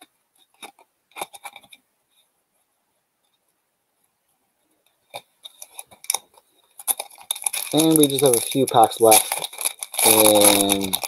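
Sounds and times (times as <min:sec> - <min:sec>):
foil wrapper crinkling: 0:05.1 - 0:11.0
trading cards being handled: 0:05.1 - 0:11.0.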